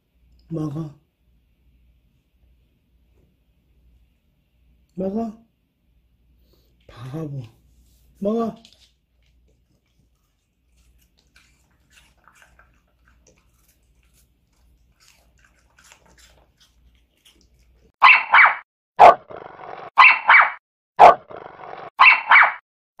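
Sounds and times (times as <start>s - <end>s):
puppy crunching apple: 8.5s - 18.0s
dog barking: 18.0s - 19.3s, 20.0s - 21.3s, 22.0s - 22.6s.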